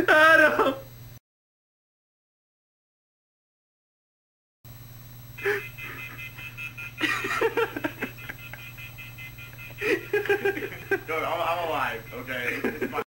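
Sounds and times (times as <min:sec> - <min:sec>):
voices or laughter: 0:00.0 - 0:00.8, 0:05.4 - 0:13.0
steady low hum: 0:00.0 - 0:01.2, 0:04.7 - 0:13.0.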